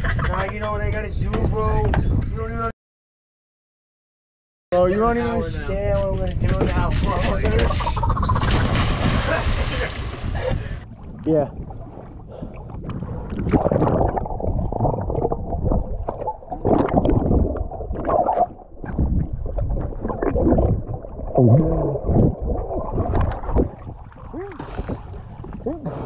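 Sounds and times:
muffled water gurgling and sloshing: 0:05.7 - 0:26.0.

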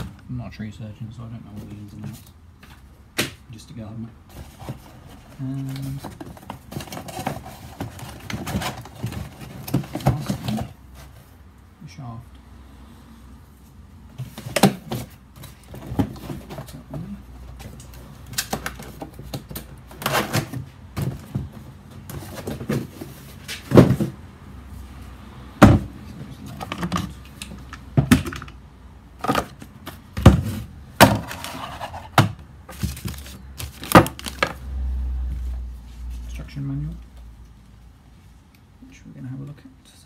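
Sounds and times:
cardboard rustling and scraping: 0:04.3 - 0:11.4, 0:14.1 - 0:24.2, 0:29.2 - 0:34.6
knocks and thuds on wooden bench: 0:25.6 - 0:26.0, 0:29.2 - 0:31.3.

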